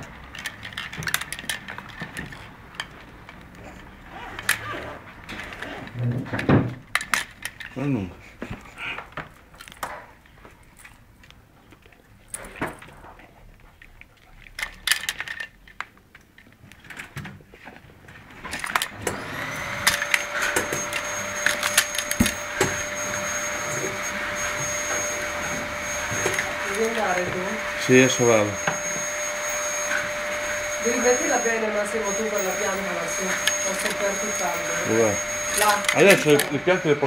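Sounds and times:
vacuum cleaner motor whine: 18.7s - 37.0s.

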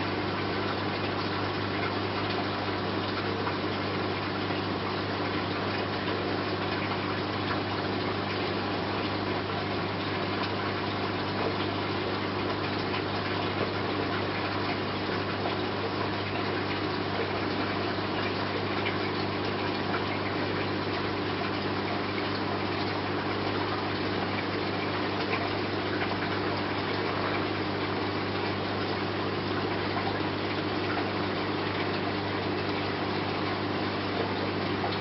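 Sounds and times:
aquarium pump hum: 0.0s - 35.0s
bubbling water: 0.0s - 35.0s.

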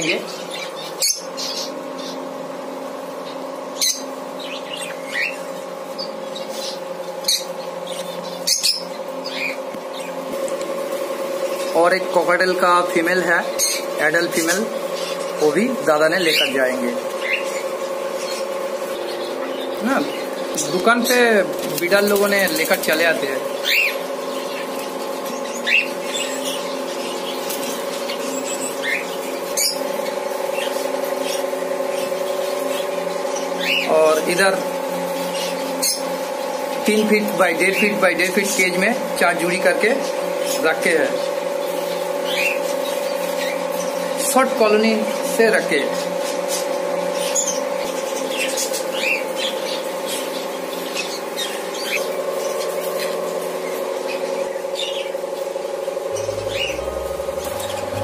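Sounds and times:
budgerigars chirping: 0.0s - 2.4s, 3.2s - 10.5s, 11.4s - 55.2s, 56.1s - 58.0s
steady low hum: 51.4s - 58.0s.

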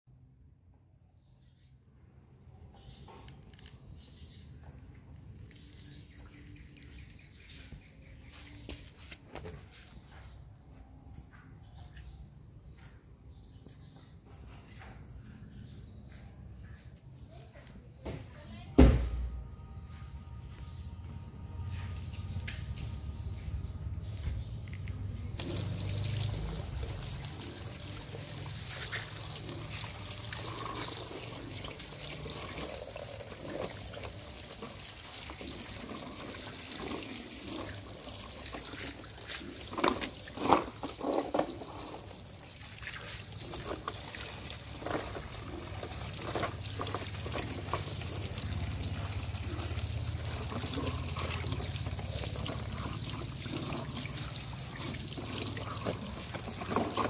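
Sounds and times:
water pouring over plastic toys: 25.4s - 57.0s
water splashing on tiles: 25.4s - 57.0s.

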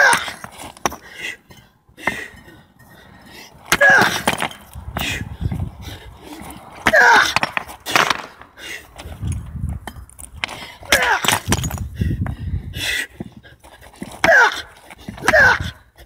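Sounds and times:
stone smashing on brick: 3.7s - 4.7s, 10.9s - 11.8s.

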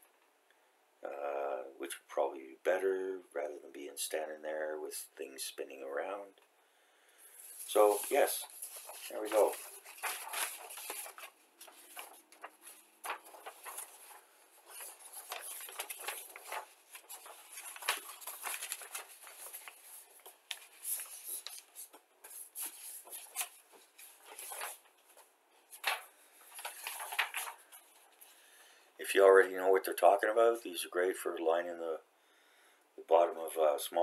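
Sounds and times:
paper sheets rustling: 7.4s - 28.4s.

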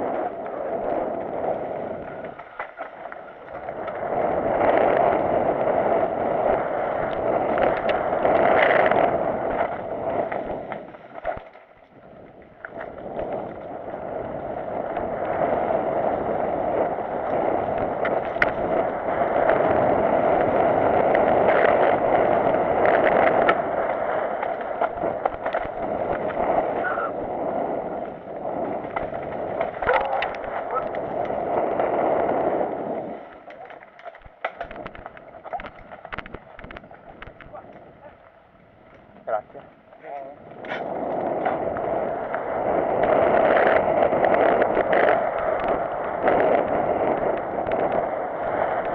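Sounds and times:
bike tyres rolling on dirt: 0.0s - 48.9s
bike clattering over roots: 1.1s - 12.0s, 12.8s - 26.8s, 27.4s - 32.4s, 33.3s - 39.2s
wind rushing: 12.0s - 33.8s.

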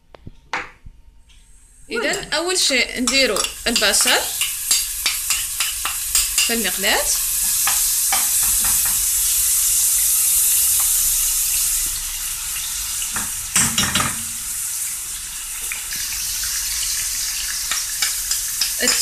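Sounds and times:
onion sizzling in oil: 1.5s - 19.0s.

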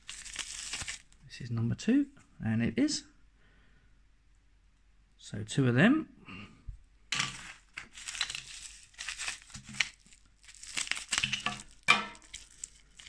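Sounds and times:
plastic packaging crinkling: 0.0s - 1.2s, 7.2s - 13.0s
sharp plastic crack: 7.2s - 13.0s
scissors cutting plastic: 8.0s - 13.0s.

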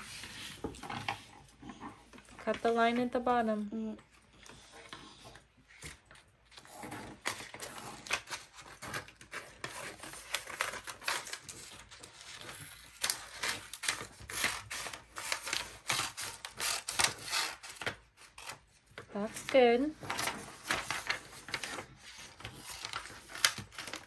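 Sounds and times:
paper rustling: 5.8s - 24.0s
scissors snipping paper: 7.0s - 18.6s.

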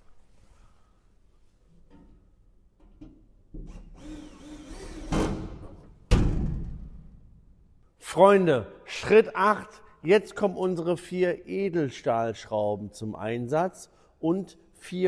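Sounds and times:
cordless drill driving screw: 3.7s - 5.3s.

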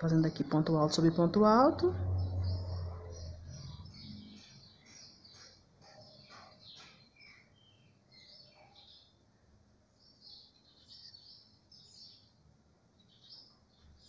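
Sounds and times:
low hum: 0.0s - 4.7s
small birds chirping: 0.0s - 14.0s.

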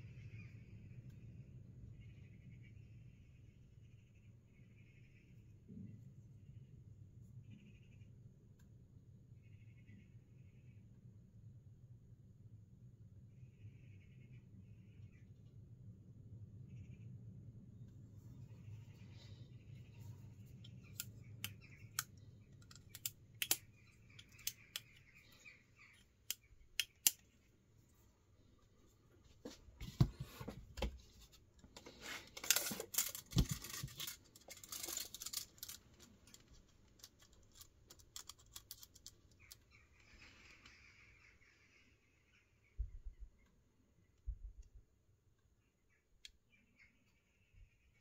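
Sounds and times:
scraping and rubbing from handling: 29.4s - 39.5s.

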